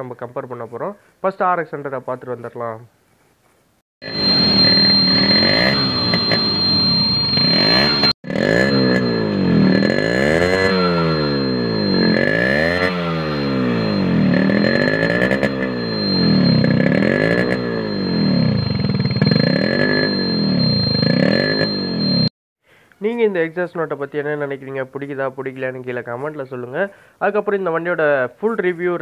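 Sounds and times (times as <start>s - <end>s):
motorcycle engine revving: 7.4s - 22.2s.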